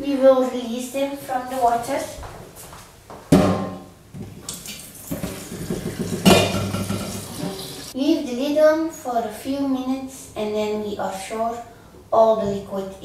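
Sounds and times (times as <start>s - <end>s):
hot water pouring into sink: 4.4s - 8.0s
metal pot knocking: 5.2s - 7.7s.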